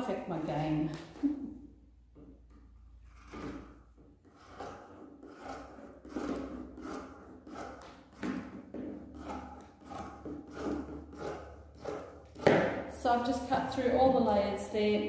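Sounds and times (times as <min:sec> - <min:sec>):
scissors snipping fabric: 0:09.2 - 0:12.6.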